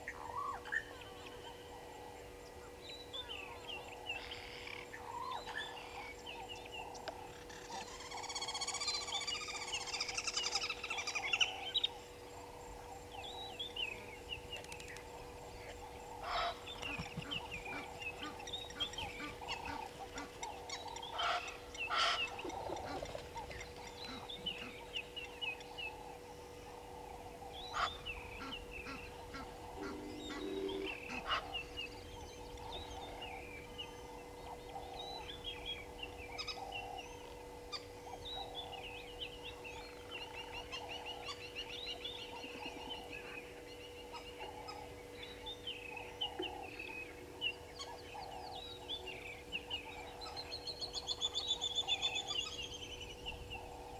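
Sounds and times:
faint steady hum: 0:00.0 - 0:53.9
geese honking: 0:16.1 - 0:23.5, 0:27.8 - 0:31.7.

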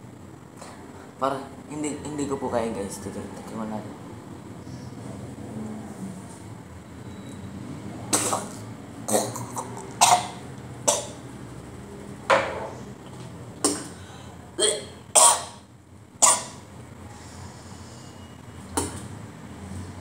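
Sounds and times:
man coughing harshly: 0:14.6 - 0:15.6.

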